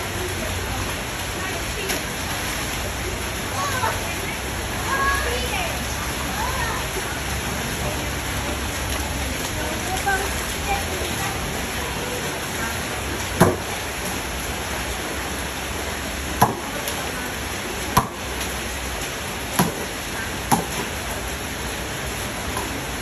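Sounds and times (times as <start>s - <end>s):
rain falling on standing water: 0.0s - 23.0s
ball slapping into water: 16.4s - 16.8s, 17.9s - 18.5s, 19.6s - 19.9s, 20.5s - 21.0s.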